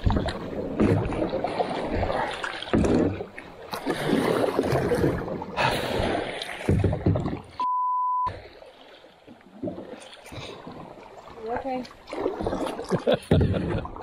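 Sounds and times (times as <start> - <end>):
paddle splashing in river water: 0.0 - 7.7, 8.3 - 14.0
censor bleep: 7.6 - 8.3.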